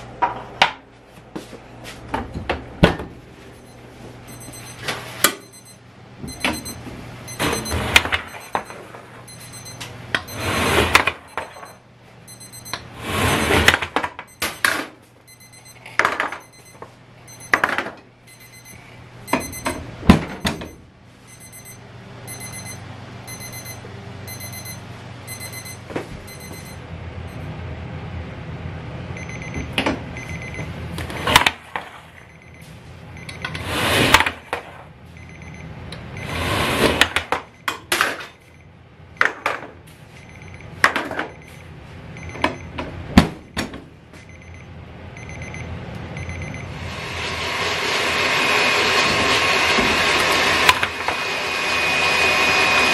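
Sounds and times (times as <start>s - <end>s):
steady low hum: 0.0s - 52.6s
electronic timer beeping: 3.6s - 12.9s, 14.3s - 17.7s, 18.3s - 27.5s, 29.2s - 30.7s, 32.2s - 33.6s, 35.2s - 36.5s, 37.4s - 39.4s, 40.2s - 42.8s, 44.2s - 46.7s.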